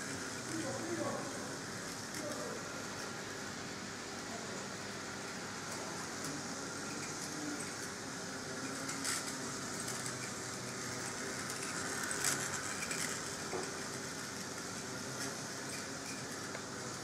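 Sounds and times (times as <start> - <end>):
model train motor whirring: 4.8 - 17.0.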